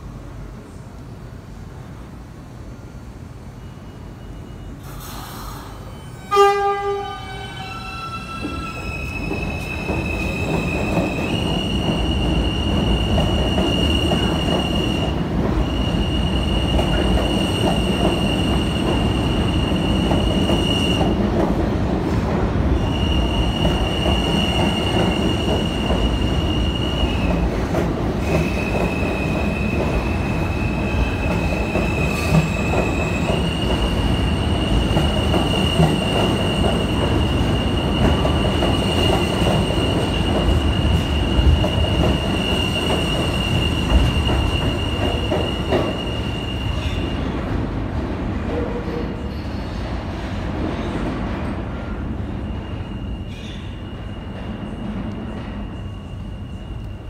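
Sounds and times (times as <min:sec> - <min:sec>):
train wheels rumbling on rail: 0:04.8 - 0:57.0.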